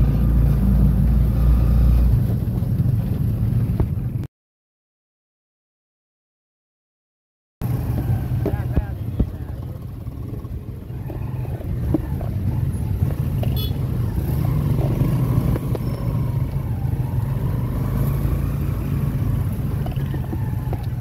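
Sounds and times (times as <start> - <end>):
motorcycle engine drone: 0.0 - 4.3, 7.6 - 21.0
sidecar rattling: 7.6 - 16.8.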